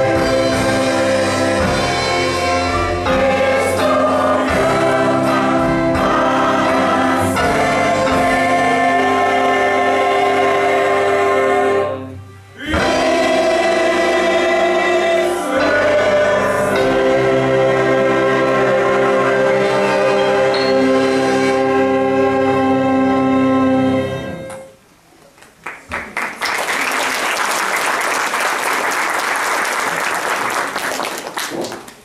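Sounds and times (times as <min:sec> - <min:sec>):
choir singing with orchestra: 0:00.0 - 0:24.7
audience applauding: 0:25.4 - 0:32.0.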